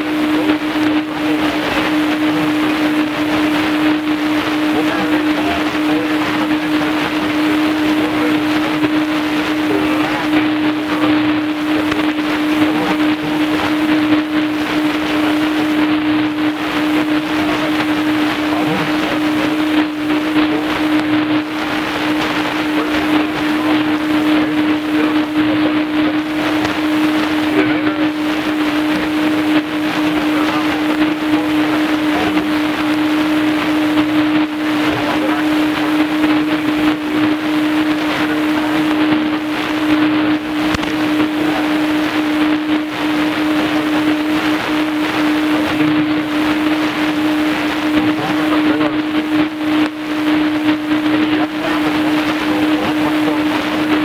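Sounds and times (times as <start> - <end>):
radio static hiss: 0.0 - 54.0.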